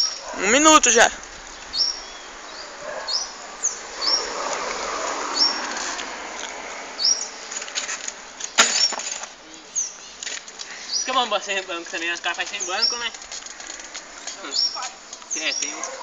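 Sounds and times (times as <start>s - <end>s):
bird chirping: 0.0s - 5.8s
outdoor background noise: 0.0s - 16.0s.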